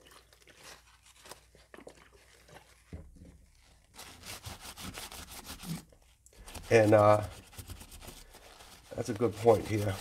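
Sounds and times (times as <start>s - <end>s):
paper towel rubbing on metal: 3.9s - 5.8s, 6.4s - 10.0s.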